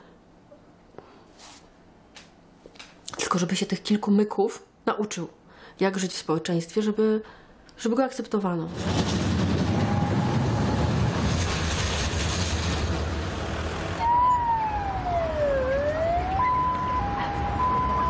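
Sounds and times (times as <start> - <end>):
city street noise: 8.7 - 18.0.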